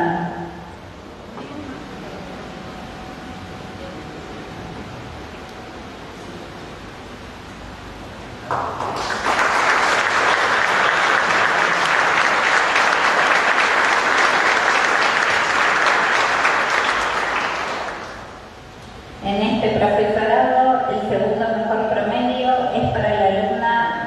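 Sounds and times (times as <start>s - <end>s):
audience applauding: 8.4s - 18.4s.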